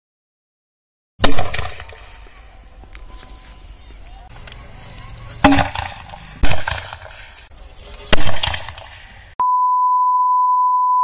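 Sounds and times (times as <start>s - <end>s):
firecracker bangs: 1.2s - 2.1s, 5.4s - 7.3s, 8.1s - 9.0s
high-pitched test-tone beep: 9.4s - 11.0s.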